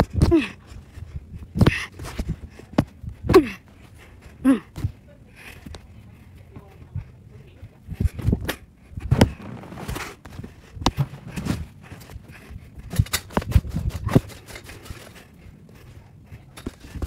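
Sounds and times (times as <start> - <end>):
running footsteps: 7.9 - 17.0
phone rubbing against clothing: 9.0 - 11.8.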